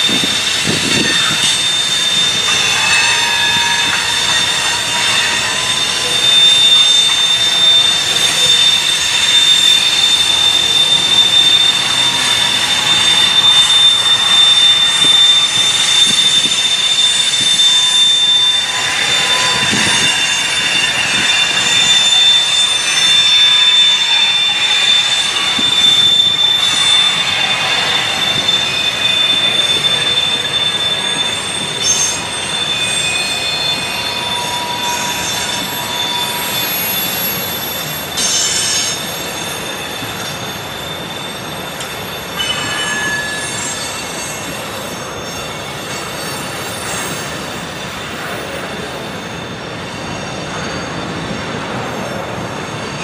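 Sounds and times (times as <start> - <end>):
train wheels rumbling: 0.0 - 53.0
wheel flanges squealing: 0.0 - 53.0.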